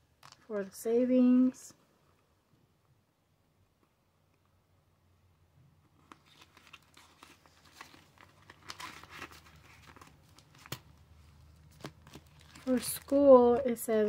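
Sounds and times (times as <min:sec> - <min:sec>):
paper money rustling: 0:06.1 - 0:10.9.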